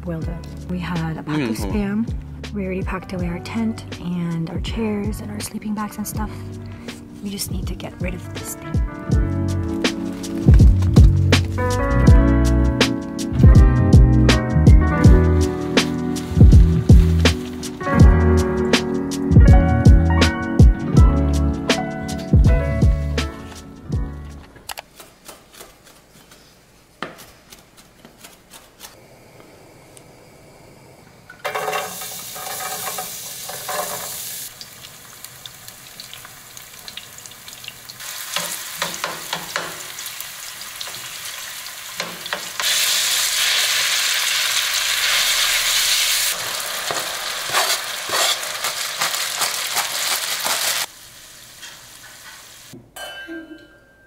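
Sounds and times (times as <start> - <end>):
bacon sizzling in a frying pan: 15.5 - 18.0, 31.5 - 52.8
wooden spoon stirring: 46.9 - 50.9.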